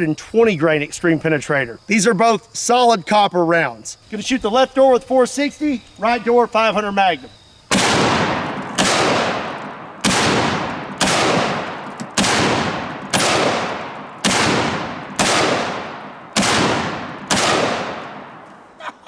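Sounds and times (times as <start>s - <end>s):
revolver gunshots echoing: 7.7s - 18.5s.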